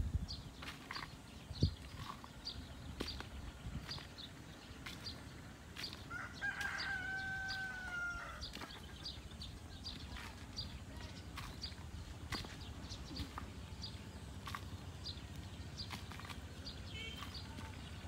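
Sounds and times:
rooster crowing: 6.1 - 8.4.

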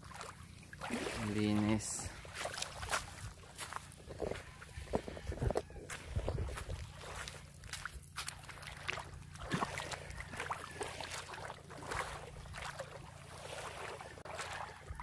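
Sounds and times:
small splashes: 0.0 - 4.0, 5.9 - 15.0
small waves lapping on sand: 0.0 - 15.0
wind rumbling on microphone: 2.8 - 7.4.

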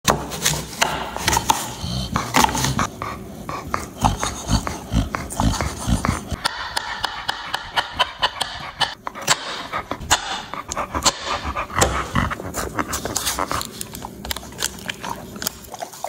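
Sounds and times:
dog licking and eating: 10.6 - 16.0.

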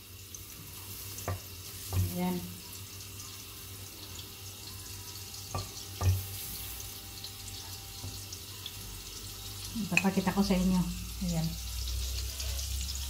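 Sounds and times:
butter sizzling in a pan: 0.0 - 13.0
wooden spatula knocking on pan: 5.5 - 6.3.

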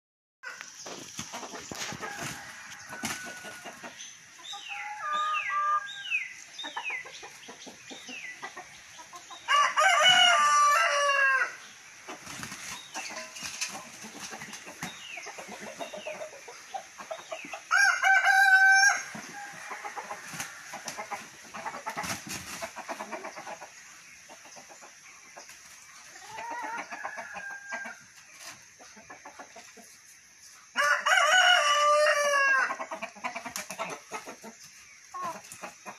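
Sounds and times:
chickens clucking: 0.4 - 35.9
rooster crowing: 2.0 - 3.7, 9.5 - 11.6, 17.7 - 20.8, 30.8 - 32.7.

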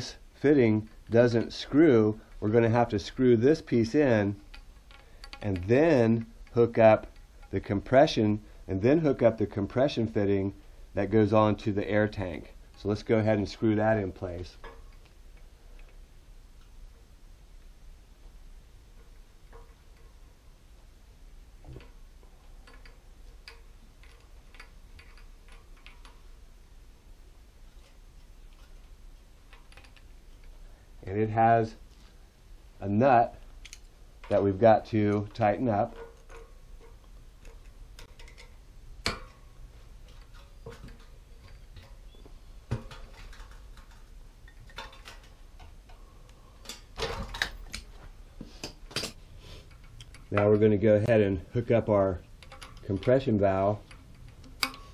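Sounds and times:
threaded fitting clicking: 4.4 - 7.6, 52.4 - 53.1, 53.8 - 54.9.

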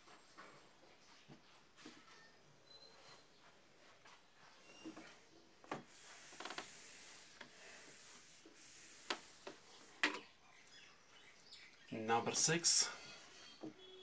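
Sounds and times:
rubbing strokes on whiteboard: 5.8 - 10.0.

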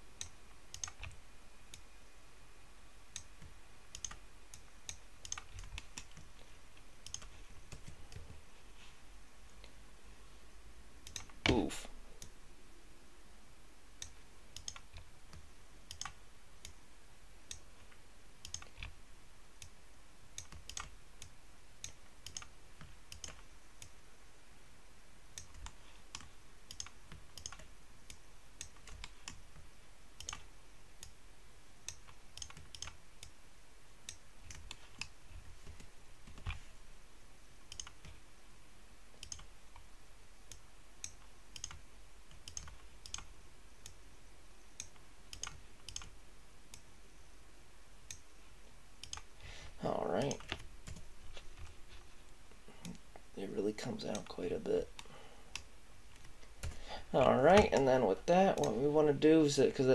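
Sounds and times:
faint steady hiss: 0.0 - 59.9
computer mouse and keyboard clicks: 0.2 - 1.9, 3.1 - 8.4, 11.0 - 12.3, 14.0 - 16.8, 17.5 - 19.0, 20.4 - 24.0, 25.4 - 31.2, 31.8 - 33.4, 34.0 - 36.7, 37.7 - 38.2, 39.2 - 39.9, 40.5 - 44.0, 44.8 - 46.8, 49.0 - 49.3, 50.2 - 51.8, 57.5 - 58.8.

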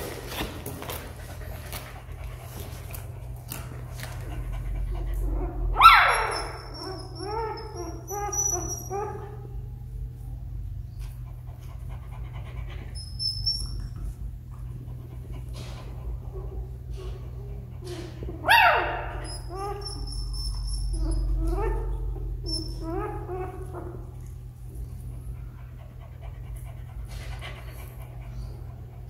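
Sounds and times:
puppy whimpering: 4.3 - 9.6, 12.4 - 14.2, 18.0 - 24.3
puppy yelping: 4.5 - 9.6, 12.6 - 14.0, 18.4 - 24.3.

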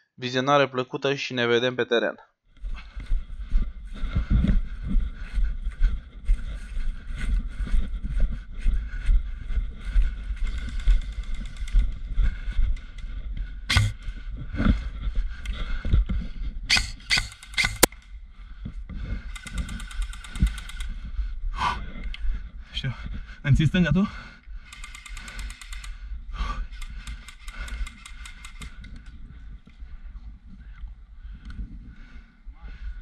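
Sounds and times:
wind buffeting microphone: 2.6 - 17.2.

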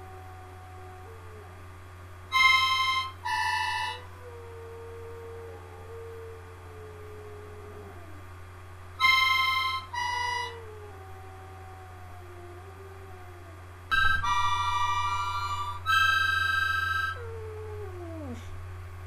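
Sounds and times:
dog howling: 0.0 - 1.6, 3.0 - 8.3, 9.8 - 18.5
harmonica chords: 2.3 - 4.0, 9.0 - 10.6, 13.9 - 17.2.

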